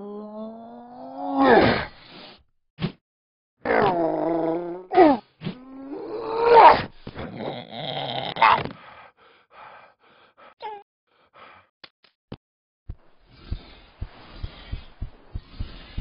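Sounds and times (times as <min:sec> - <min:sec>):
groan of effort: 0:00.0 - 0:01.9
breathy panting: 0:08.7 - 0:11.7, 0:13.3 - 0:16.0.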